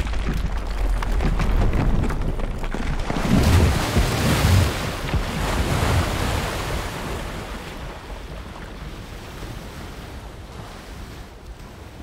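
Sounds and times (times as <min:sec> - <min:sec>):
ice crashing deep rumble: 0:00.0 - 0:07.4
churning water and spray: 0:02.9 - 0:12.0.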